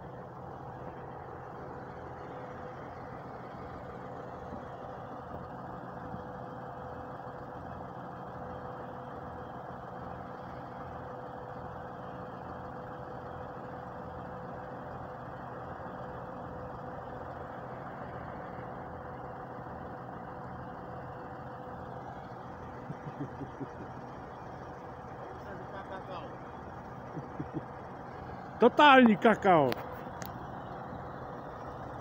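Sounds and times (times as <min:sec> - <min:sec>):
diesel engines idling: 0:00.0 - 0:32.0
steady whine: 0:22.8 - 0:31.2.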